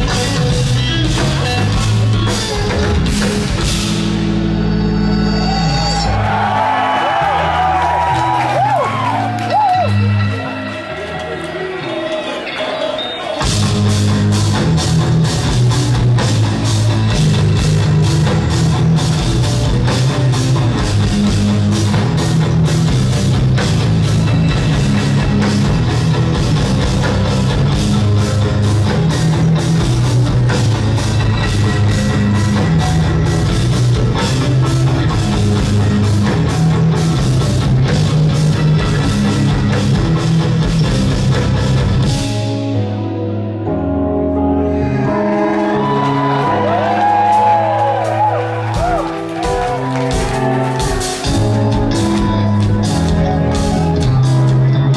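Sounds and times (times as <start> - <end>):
drum kit with cymbals: 0.0 - 4.5, 47.1 - 54.9
electric guitars playing riffs: 0.0 - 54.9.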